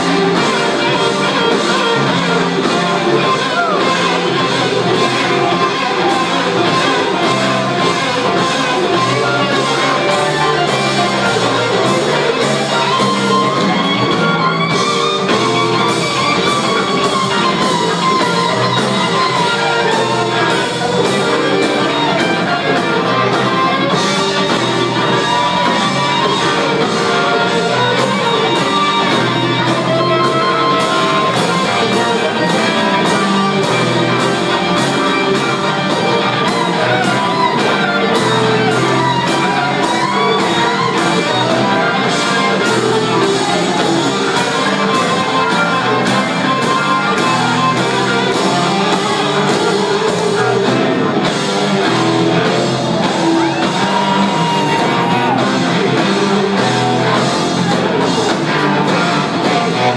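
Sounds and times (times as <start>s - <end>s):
bass guitar: 0.0s - 59.9s
electric guitar: 0.0s - 59.9s
steady drum beat: 0.0s - 59.9s.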